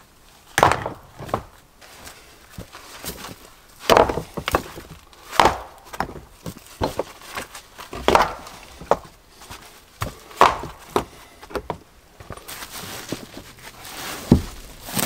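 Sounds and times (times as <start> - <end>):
wood knocks and chops: 0.5 - 1.6, 2.6 - 9.1, 10.0 - 12.4, 14.2 - 15.0.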